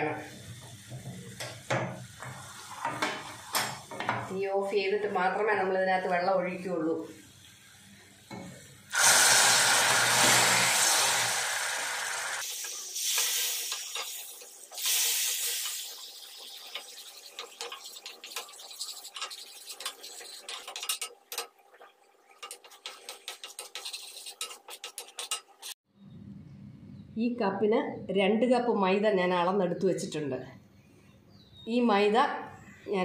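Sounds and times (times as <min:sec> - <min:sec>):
water hissing on hot caramel: 0:08.9 - 0:20.6
spatula scraping a pan: 0:12.7 - 0:25.8.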